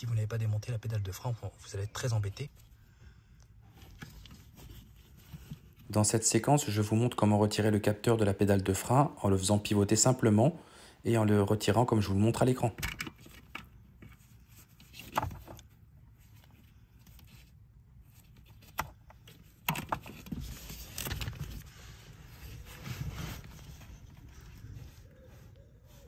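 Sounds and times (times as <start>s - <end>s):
gloves rustling on plastic: 19.2s - 26.0s.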